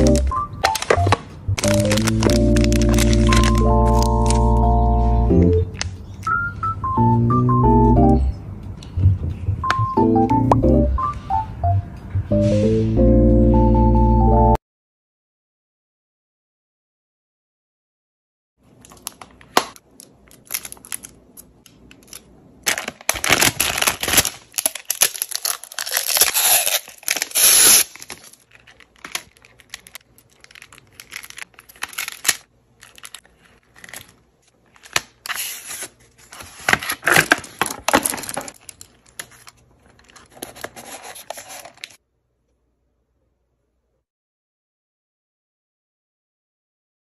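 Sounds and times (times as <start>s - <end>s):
plastic packaging crinkling: 0.0s - 4.6s, 18.7s - 42.0s.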